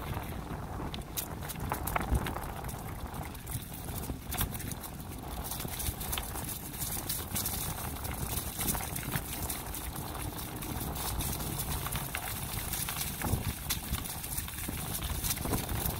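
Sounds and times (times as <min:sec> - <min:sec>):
bicycle ticks and rattles: 0:00.0 - 0:15.9
bicycle tyres crackling on leaves: 0:00.0 - 0:15.9
low steady rumble: 0:00.0 - 0:15.9.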